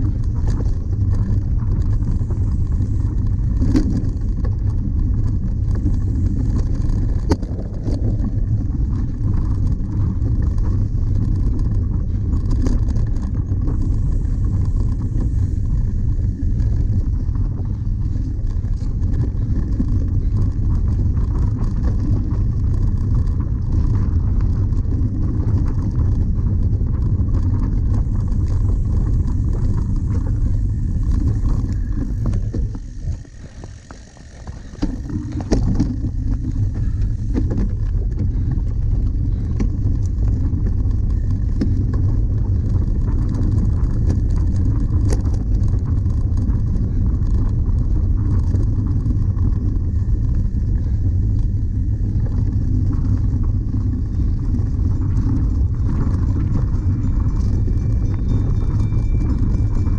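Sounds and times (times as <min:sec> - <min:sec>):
bike tyres rumbling over grass: 0:00.0 - 0:59.9.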